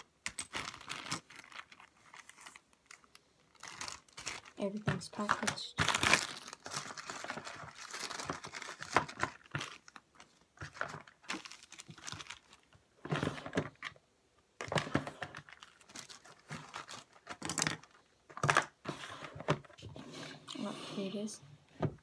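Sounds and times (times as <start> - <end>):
plastic packets crinkling: 0.0 - 14.0, 14.6 - 18.8
plastic drawers clattering: 13.0 - 14.0.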